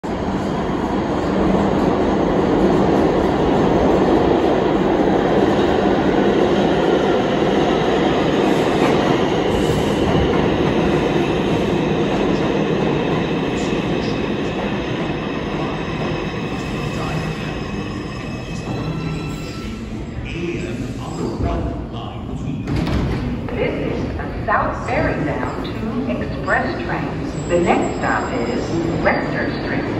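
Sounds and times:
subway train wheels rumbling: 0.0 - 29.9.

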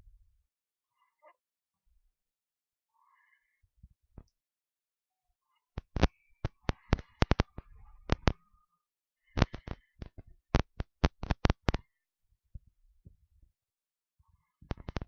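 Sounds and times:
computer mouse clicks: 5.8 - 8.4, 9.3 - 11.9, 14.7 - 15.0.

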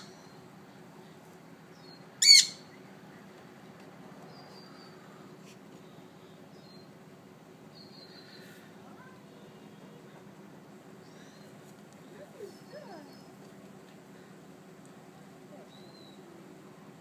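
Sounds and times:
parrot screeching: 2.2 - 2.6.

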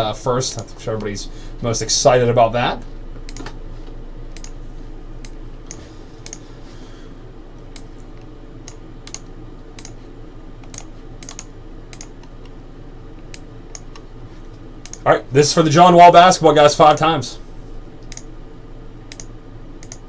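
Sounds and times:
low room hum: 0.0 - 20.0
keyboard keystrokes: 8.7 - 10.0, 10.6 - 12.4.

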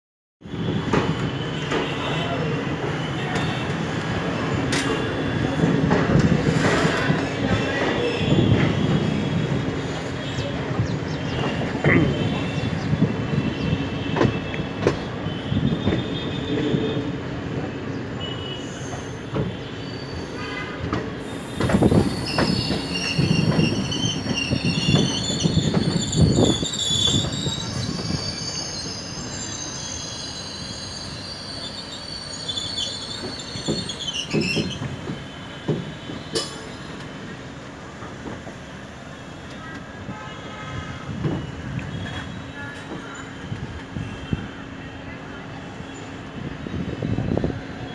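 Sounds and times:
high wheel squeal: 18.2 - 37.3.

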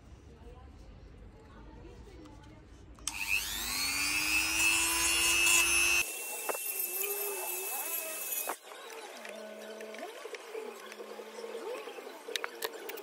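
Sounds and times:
rotary tool grinding wood: 3.1 - 8.6.

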